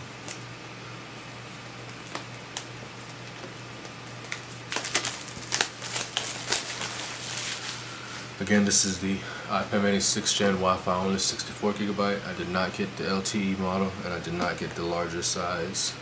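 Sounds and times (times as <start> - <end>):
plastic wrapping crinkling: 0.0 - 8.3.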